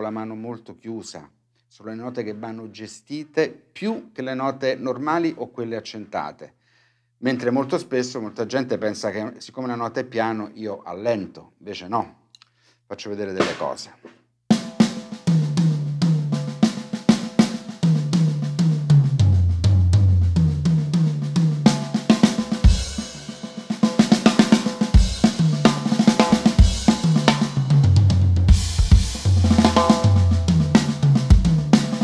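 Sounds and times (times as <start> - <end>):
tom fills: 17.9 - 32.0
snare ghost notes: 23.8 - 32.0
bass drum hits: 25.0 - 32.0
cymbal crashes: 28.5 - 32.0.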